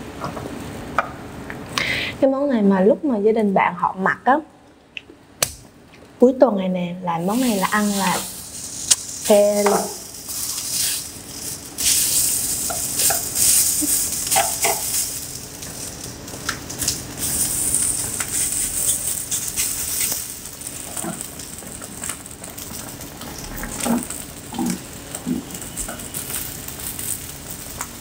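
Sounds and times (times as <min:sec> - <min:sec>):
meat sizzling on a grill plate: 0:07.2 - 0:28.0.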